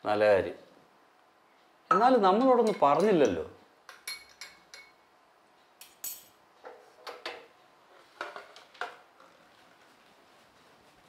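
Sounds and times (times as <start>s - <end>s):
glasses and pots clinking: 1.9s - 5.0s.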